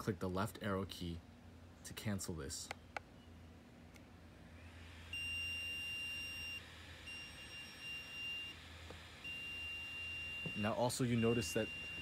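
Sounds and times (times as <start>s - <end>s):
high electronic alarm beeps: 5.1s - 8.6s, 9.2s - 12.0s.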